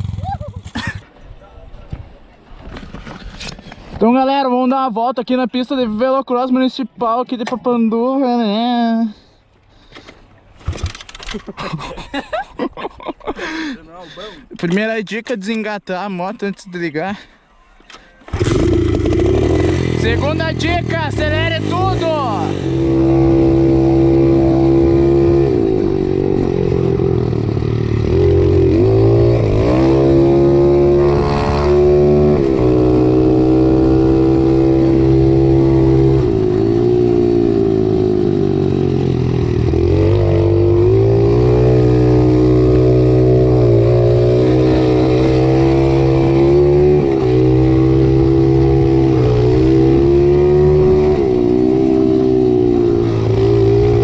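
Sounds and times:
motorbike engine revving: 0:18.3 - 0:54.0.

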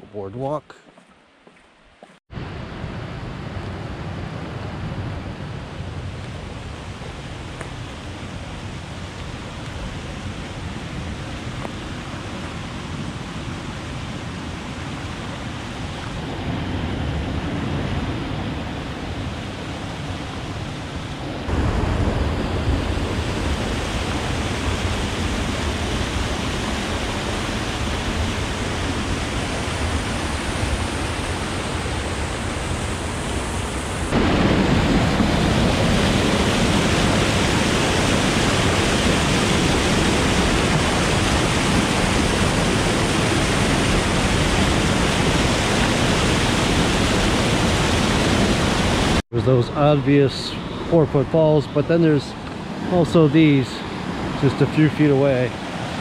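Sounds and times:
waterfall rushing over rocks: 0:22.4 - 0:49.2.

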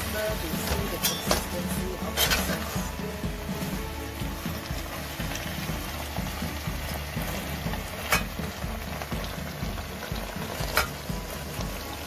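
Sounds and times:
vegetables sizzling in a wok: 0:00.0 - 0:12.0
spatula clinking against wok: 0:01.0 - 0:01.5.

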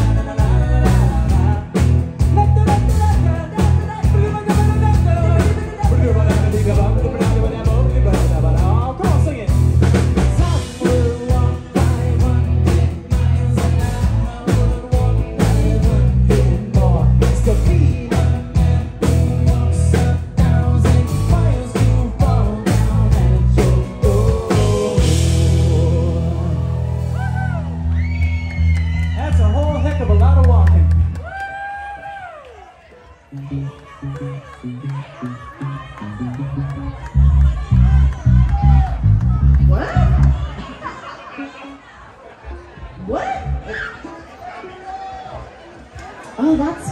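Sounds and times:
live rock band playing: 0:00.0 - 0:31.1.

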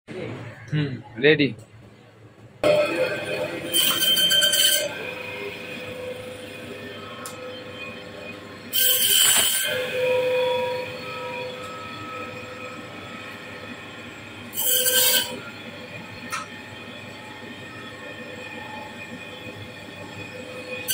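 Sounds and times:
band saw whining: 0:02.6 - 0:20.9
saw blade cutting fish: 0:08.7 - 0:10.1, 0:14.5 - 0:15.4.

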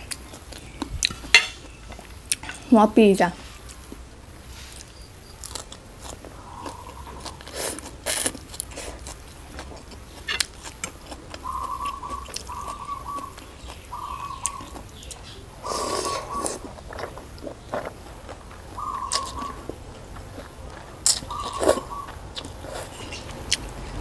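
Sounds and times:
chewing: 0:04.7 - 0:23.7
slurping noodles: 0:15.6 - 0:17.2.

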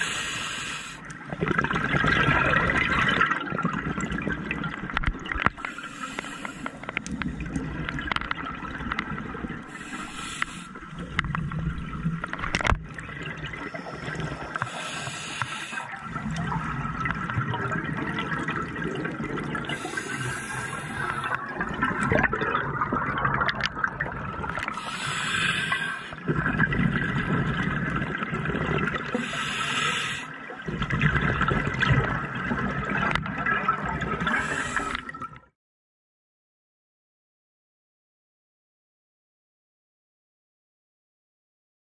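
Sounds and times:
regulator inhale hiss: 0:00.0 - 0:01.1, 0:05.6 - 0:07.0, 0:09.7 - 0:10.8, 0:13.9 - 0:16.0, 0:19.8 - 0:21.4, 0:24.7 - 0:26.2, 0:29.2 - 0:30.3, 0:34.3 - 0:35.1
exhaled bubbles rushing: 0:01.2 - 0:06.0, 0:10.7 - 0:15.0, 0:15.6 - 0:29.4, 0:30.4 - 0:35.5.

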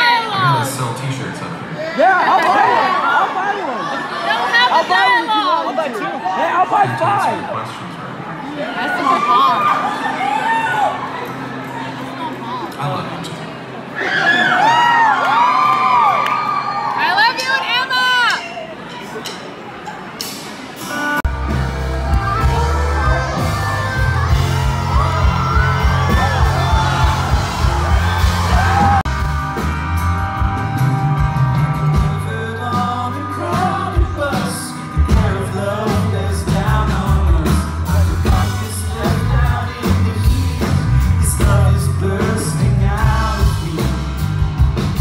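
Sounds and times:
keyboards: 0:06.6 - 0:45.0
booming bass: 0:21.3 - 0:32.4
man singing: 0:31.8 - 0:44.6.

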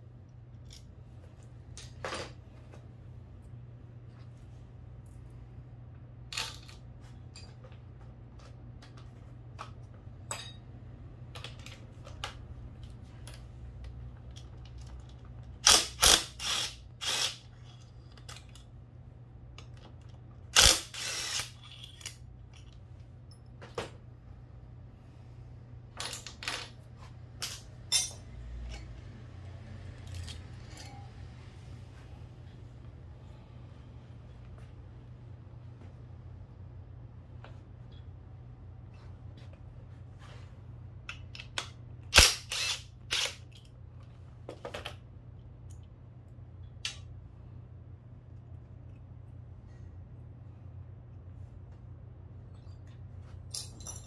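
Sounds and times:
steady low hum: 0:00.0 - 0:54.0
metal tools clinking: 0:10.3 - 0:10.6, 0:27.4 - 0:28.8, 0:30.0 - 0:31.2, 0:53.5 - 0:54.0.

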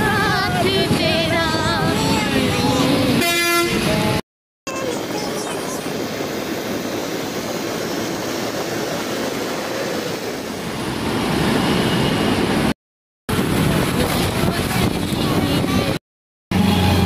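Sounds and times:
road and traffic noise: 0:00.0 - 0:17.0.

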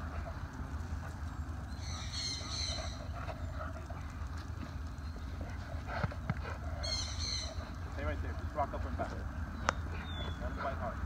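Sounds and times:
high chirping call: 0:01.7 - 0:03.0.

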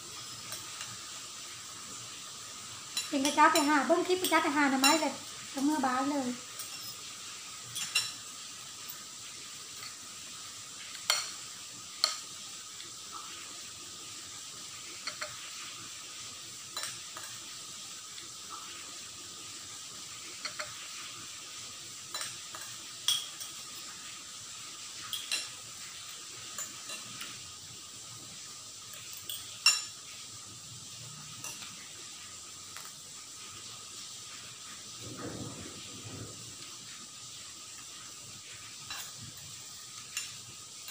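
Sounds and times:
steady hiss: 0:00.0 - 0:40.9
cutlery clinking on ceramic bowls: 0:00.1 - 0:01.0, 0:02.9 - 0:05.1, 0:06.6 - 0:07.1, 0:07.7 - 0:08.2, 0:10.9 - 0:11.4, 0:12.0 - 0:12.2, 0:15.0 - 0:15.4, 0:16.8 - 0:17.4, 0:20.4 - 0:20.8, 0:22.1 - 0:23.9, 0:25.0 - 0:25.6, 0:26.5 - 0:27.4, 0:28.9 - 0:30.0, 0:31.4 - 0:31.7, 0:38.9 - 0:40.9.

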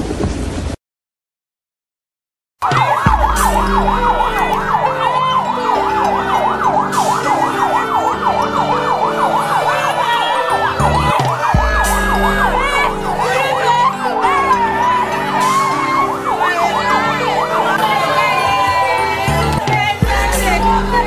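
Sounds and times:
siren yelping: 0:02.6 - 0:21.0.

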